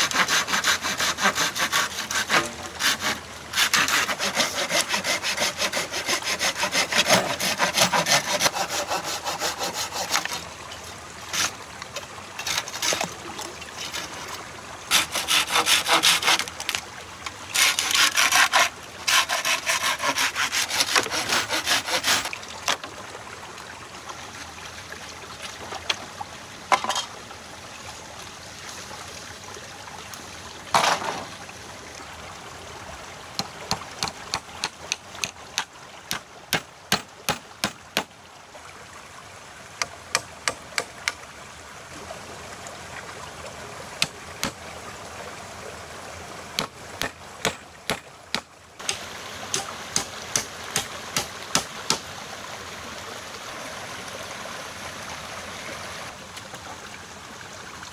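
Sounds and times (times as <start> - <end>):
hand saw cutting wood: 0.0 - 10.4, 11.3 - 11.6, 12.4 - 13.1, 14.9 - 16.8, 17.5 - 22.4, 33.7 - 35.7, 36.5 - 38.1, 46.6 - 52.0.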